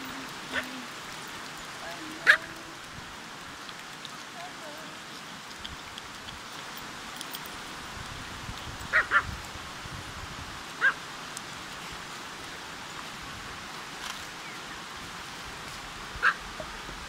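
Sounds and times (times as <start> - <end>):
river rushing: 0.0 - 17.0
small dogs yipping: 8.9 - 9.3, 16.2 - 16.4.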